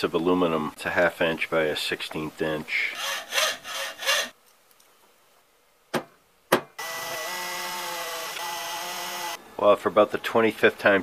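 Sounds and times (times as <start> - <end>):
cordless drill drilling metal: 2.9 - 4.4, 6.8 - 9.4
hacksaw cutting metal: 3.0 - 4.3.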